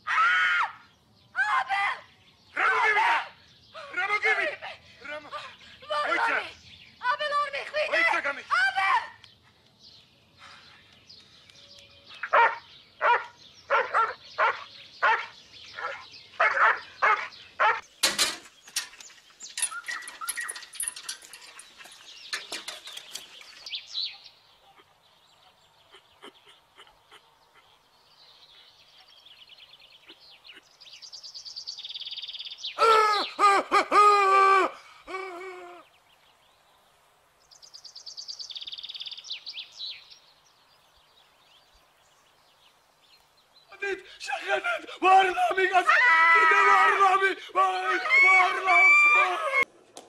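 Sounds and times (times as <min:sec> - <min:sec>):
songbird singing: 0:00.0 - 0:49.7
birds chirping and fluttering: 0:01.9 - 0:33.4
dog barking: 0:12.2 - 0:17.8.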